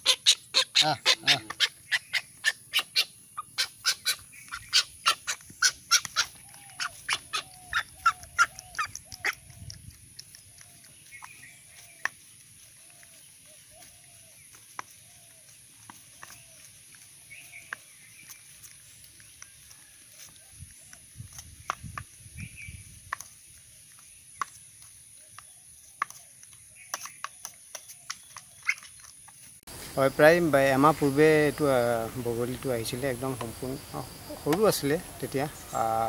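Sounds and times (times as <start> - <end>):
faint short bird calls: 0.0 - 9.7
bird bill clicking and pecking: 0.0 - 29.8, 31.5 - 36.0.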